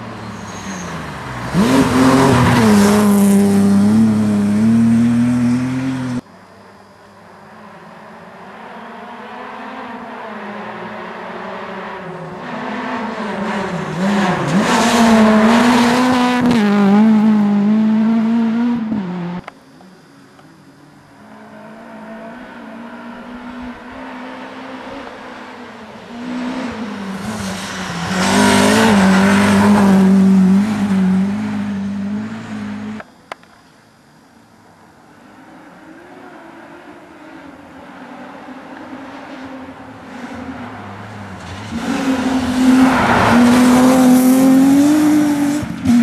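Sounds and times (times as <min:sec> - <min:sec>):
rally car engine at high revs: 0:01.1 - 0:06.2, 0:07.8 - 0:19.5, 0:21.3 - 0:33.1, 0:36.6 - 0:46.0.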